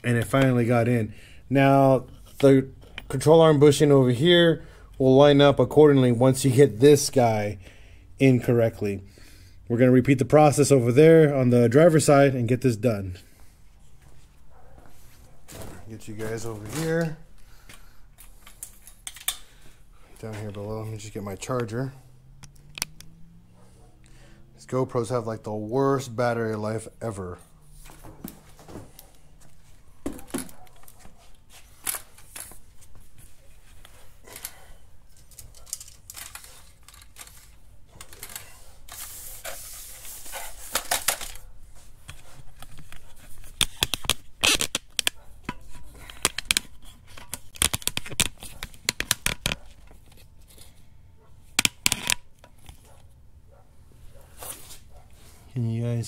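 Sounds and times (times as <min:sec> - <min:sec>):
camera handling clicks and knocks: 0:18.4 - 0:19.4, 0:43.6 - 0:50.2.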